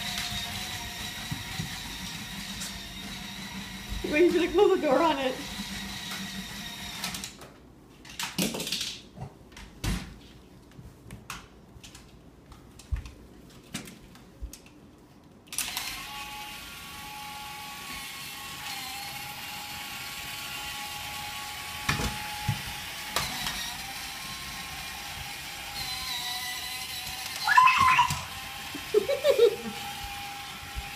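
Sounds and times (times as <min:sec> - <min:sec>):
toy car motor whirring: 0:15.6 - 0:30.9.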